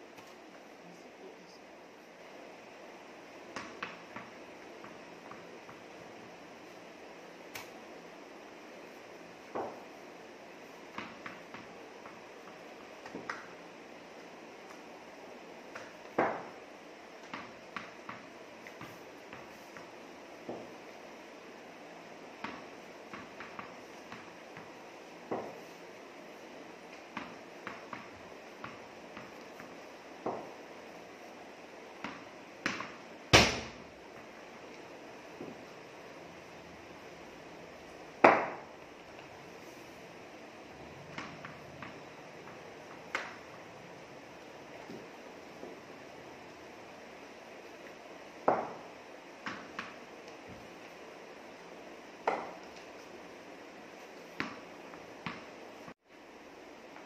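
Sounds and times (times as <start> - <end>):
tennis ball bouncing on tiled floor: 3.5 - 5.9, 9.5 - 10.0, 10.9 - 13.6, 15.7 - 16.6, 17.2 - 20.8, 22.4 - 25.7, 26.9 - 30.6, 31.9 - 34.3, 38.2 - 39.2, 41.1 - 43.5, 48.4 - 50.6, 52.2 - 52.8, 54.3 - 55.5
ball knocking against bat: 52.2 - 52.6.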